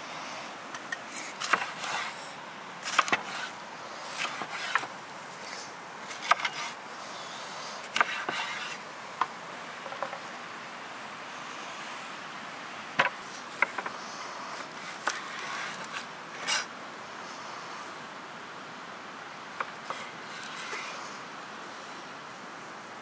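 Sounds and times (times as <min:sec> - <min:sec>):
steady background hiss: 0:00.0 - 0:23.0
knife chopping on wooden board: 0:02.9 - 0:03.3, 0:06.1 - 0:06.7, 0:07.9 - 0:08.8.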